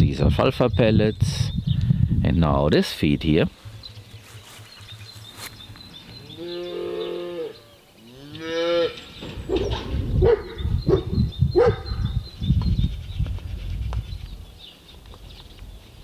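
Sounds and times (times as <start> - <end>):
young livestock calling: 6.0 - 12.0
low thumping rumble: 9.0 - 14.1.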